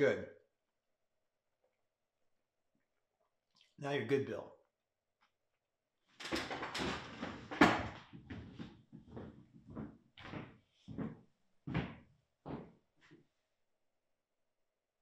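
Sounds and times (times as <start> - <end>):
chair scraping on wooden floor: 6.3 - 9.4
footsteps on wooden floor: 6.6 - 13.2.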